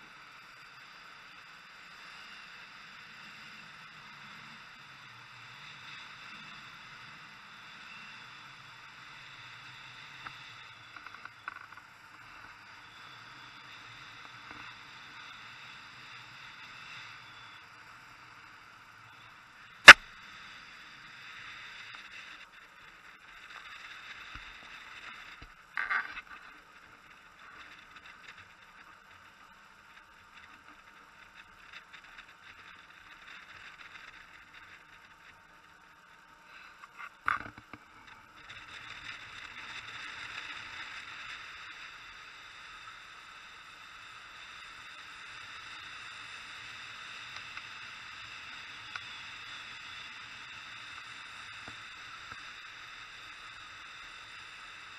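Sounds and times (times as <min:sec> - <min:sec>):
wind and sea noise: 0:00.0 - 0:54.9
sharp loud click: 0:19.9 - 0:20.1.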